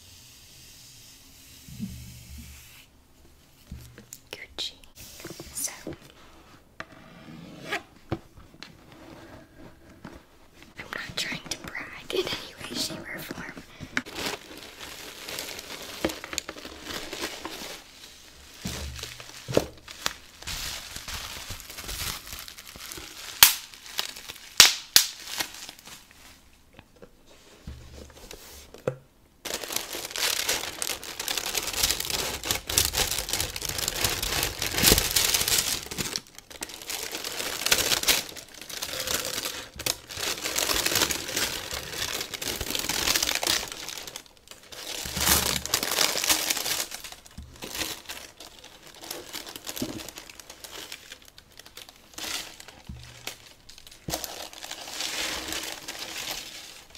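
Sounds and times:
tissue paper crinkling: 0:08.8 - 0:26.6, 0:29.4 - 0:56.9
sharp paper snaps: 0:23.4 - 0:23.7, 0:24.5 - 0:25.3.

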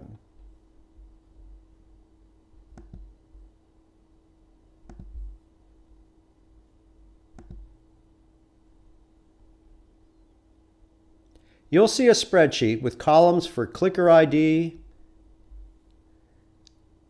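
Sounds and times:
faint steady hum: 0:00.0 - 0:17.0
computer mouse clicks: 0:02.7 - 0:03.1, 0:04.8 - 0:05.2, 0:07.3 - 0:07.7.

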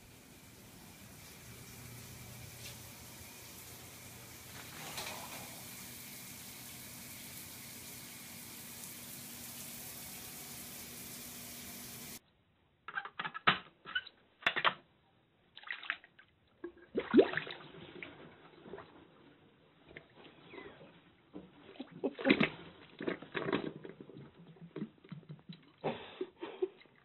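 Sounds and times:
water running into a bathtub: 0:00.0 - 0:12.2, 0:16.8 - 0:20.4.

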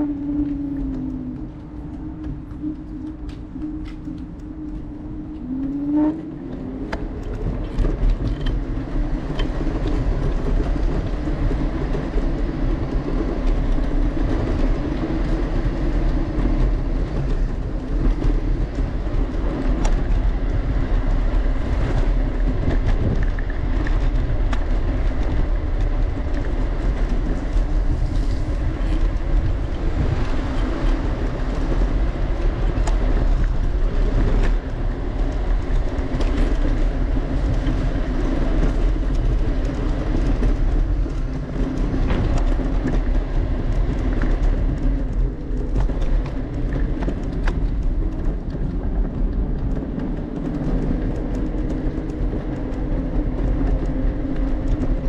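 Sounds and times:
rumbling of moving vehicle: 0:00.0 - 0:55.0.

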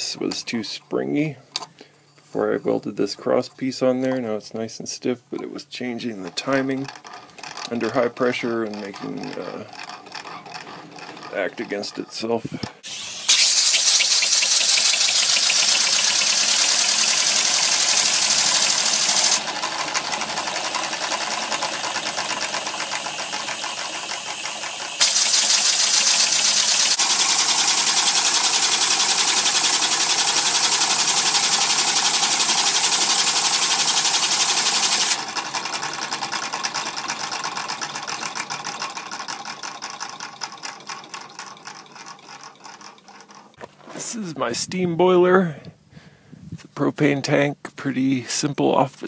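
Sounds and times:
model steam engine clattering: 0:06.0 - 0:12.4, 0:13.3 - 0:43.6
steam hiss: 0:12.8 - 0:19.4, 0:22.4 - 0:35.2.

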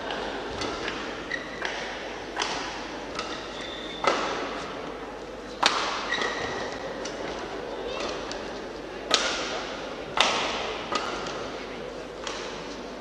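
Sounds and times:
racket hitting shuttlecock: 0:00.0 - 0:04.9, 0:05.5 - 0:11.6, 0:12.2 - 0:12.8
shoes squeaking on court floor: 0:01.2 - 0:01.7, 0:03.3 - 0:04.8, 0:06.0 - 0:07.0.

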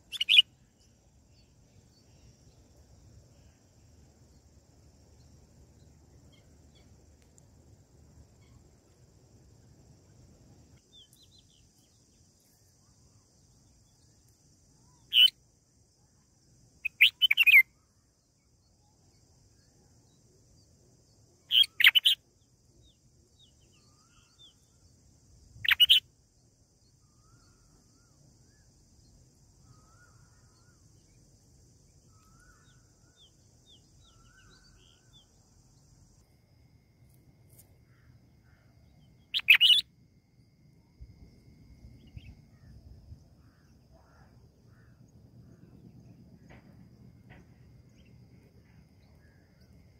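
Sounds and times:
bird chirping calls: 0:00.0 - 0:00.5, 0:14.9 - 0:15.3, 0:16.8 - 0:17.6, 0:21.5 - 0:22.2, 0:25.6 - 0:26.0, 0:39.0 - 0:39.9.

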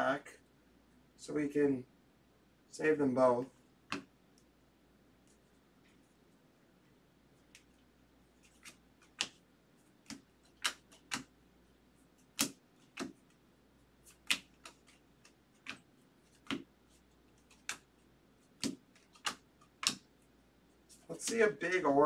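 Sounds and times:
trading cards snapping: 0:03.9 - 0:04.1, 0:08.4 - 0:09.4, 0:10.0 - 0:11.3, 0:12.3 - 0:13.2, 0:14.1 - 0:16.7, 0:17.4 - 0:17.9, 0:18.5 - 0:20.1, 0:21.1 - 0:21.9.

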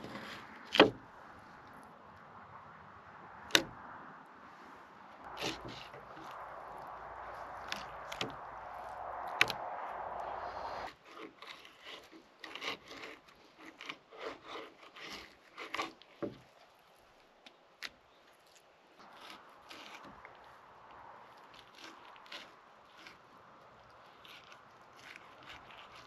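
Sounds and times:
steady rush: 0:05.2 - 0:10.9
knife scraping fish fillet: 0:11.0 - 0:16.5, 0:18.5 - 0:20.3, 0:21.4 - 0:23.3, 0:24.0 - 0:26.0.

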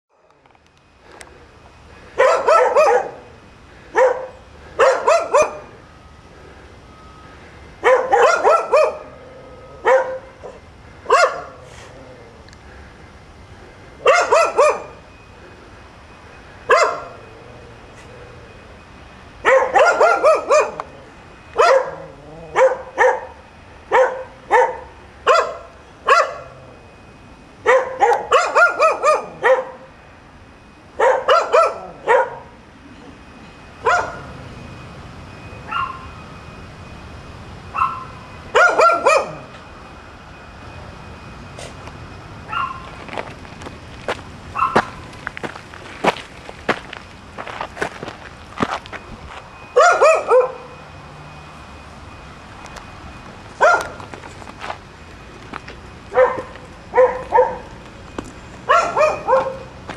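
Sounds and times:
dogs barking: 0:02.2 - 0:05.8, 0:07.8 - 0:09.2, 0:09.8 - 0:11.7, 0:14.0 - 0:15.0, 0:16.7 - 0:17.2, 0:19.4 - 0:21.0, 0:21.6 - 0:26.6, 0:27.6 - 0:29.9, 0:31.0 - 0:32.6, 0:33.8 - 0:34.3, 0:35.7 - 0:36.1, 0:37.7 - 0:39.5, 0:42.5 - 0:42.9, 0:44.5 - 0:45.0, 0:49.8 - 0:50.8, 0:53.6 - 0:54.0, 0:56.1 - 0:57.8, 0:58.6 - 0:59.8.

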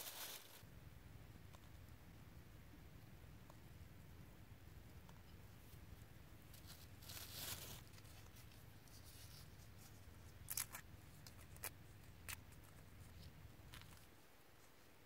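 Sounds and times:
leaves rustling: 0:00.0 - 0:00.6, 0:06.5 - 0:11.7
faint low hum: 0:00.0 - 0:15.0.

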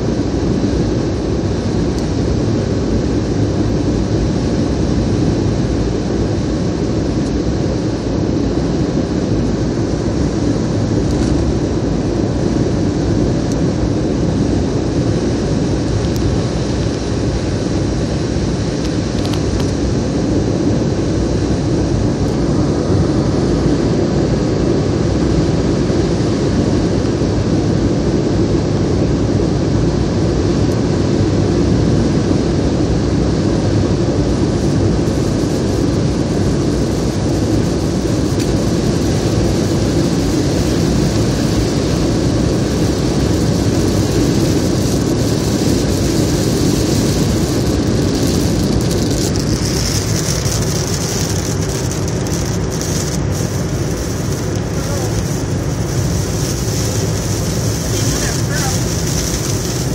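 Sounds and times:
car cabin road noise: 0:34.4 - 0:59.9
raindrops ticking on windshield: 0:34.6 - 0:59.9.

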